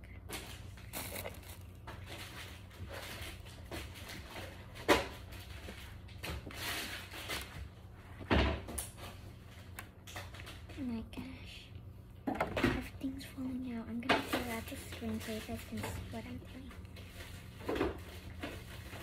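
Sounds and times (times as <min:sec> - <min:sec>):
small handling noises: 0:00.1 - 0:11.2.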